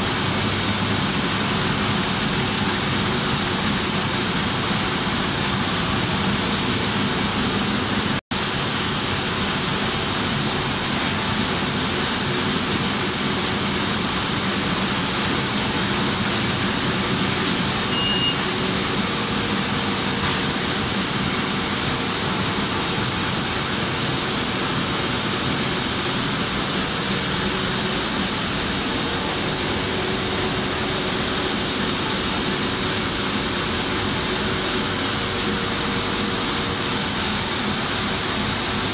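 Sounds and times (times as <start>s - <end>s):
printing press running: 8.8s - 38.9s.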